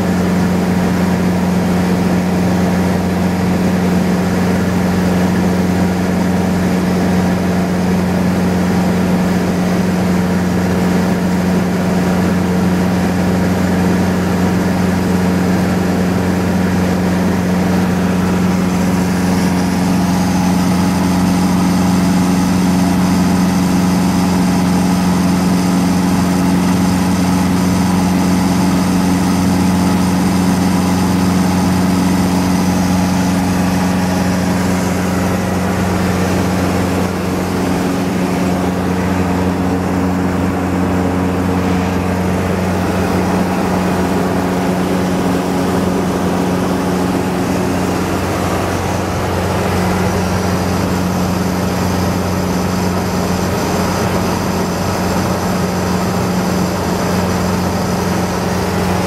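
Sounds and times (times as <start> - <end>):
propeller plane engine drone: 0.0 - 59.0.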